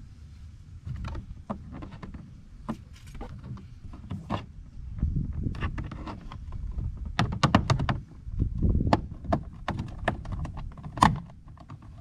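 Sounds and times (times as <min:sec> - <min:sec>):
plastic door trim clicking and snapping: 0:08.9 - 0:11.9.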